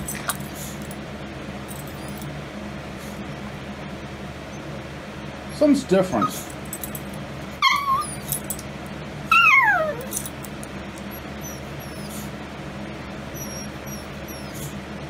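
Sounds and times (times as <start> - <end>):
dog whining: 5.5 - 6.6, 7.6 - 8.6, 9.3 - 10.4, 11.0 - 12.4, 13.2 - 14.8.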